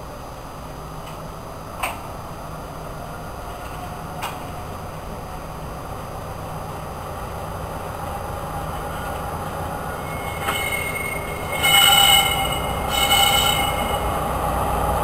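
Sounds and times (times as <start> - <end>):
diesel locomotive engine rumble: 0.0 - 15.0
train wheels squealing: 8.6 - 15.0.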